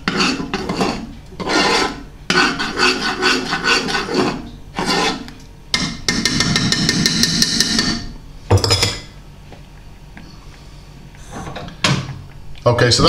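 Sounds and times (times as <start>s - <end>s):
metal utensil scraping saucepan: 0.0s - 5.3s.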